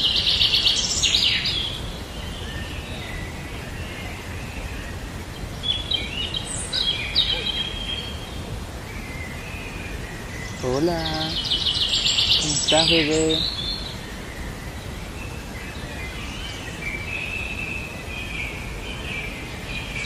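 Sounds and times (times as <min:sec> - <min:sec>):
birds singing and chirping: 0:00.0 - 0:20.0
steady background noise: 0:00.0 - 0:20.0.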